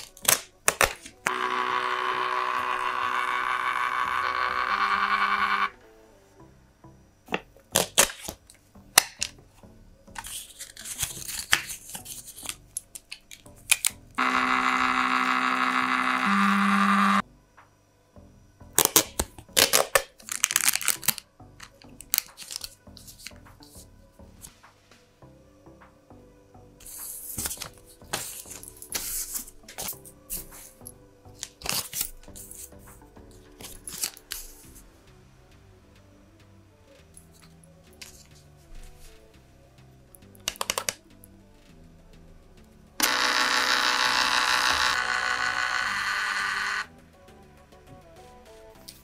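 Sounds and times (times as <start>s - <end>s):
soft background music: 0.0s - 49.0s
printer motor whine: 1.2s - 5.8s, 14.2s - 17.2s, 43.0s - 46.9s
paper rustling: 10.2s - 13.4s, 22.2s - 23.3s.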